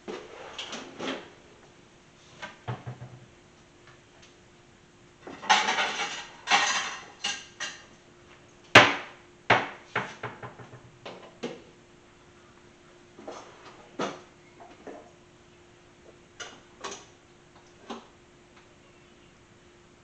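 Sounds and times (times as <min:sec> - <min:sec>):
dishes scraping: 0:05.3 - 0:07.8.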